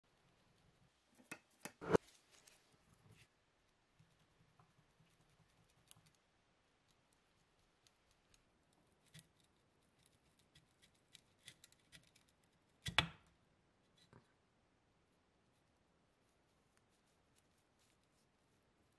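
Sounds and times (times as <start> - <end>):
faint metal clicks and scrapes: 0.4 - 13.0.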